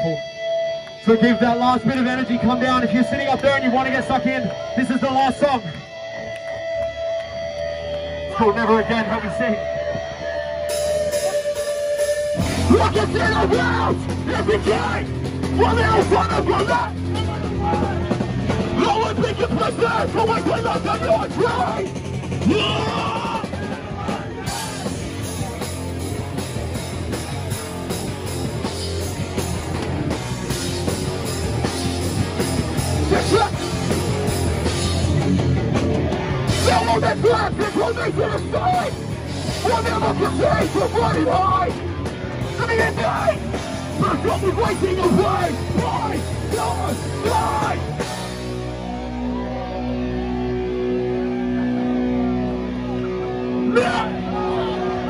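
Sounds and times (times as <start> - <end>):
live punk band playing: 0.0 - 55.0
crowd shouting: 8.2 - 55.0
distorted electric guitar chord: 24.7 - 55.0.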